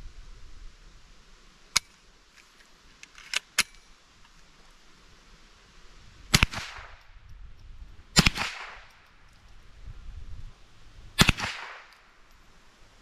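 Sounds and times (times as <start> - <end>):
rifle shots with echo: 6.3 - 7.0, 8.2 - 8.9, 11.2 - 12.1.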